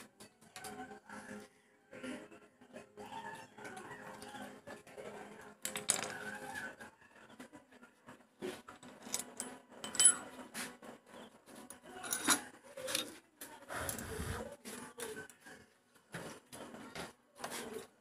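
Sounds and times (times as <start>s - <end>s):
tools clinking on metal: 9.0s - 10.3s, 12.0s - 13.1s.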